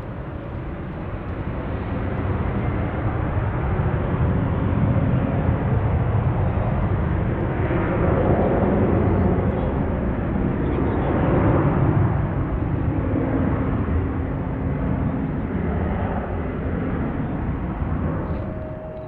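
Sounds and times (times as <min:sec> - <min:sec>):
jet engine rumble: 0:00.0 - 0:19.0.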